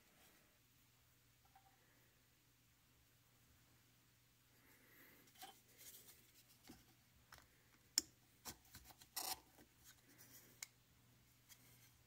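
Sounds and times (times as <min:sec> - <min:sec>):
metal strip scraping plastic: 0:08.9 - 0:09.5.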